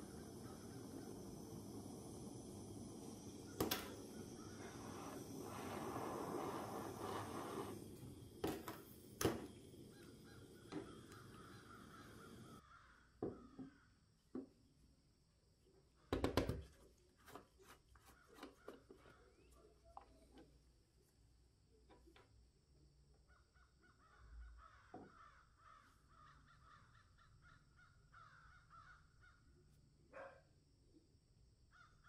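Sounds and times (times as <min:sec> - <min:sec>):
gas torch flame hissing: 0:00.0 - 0:12.6.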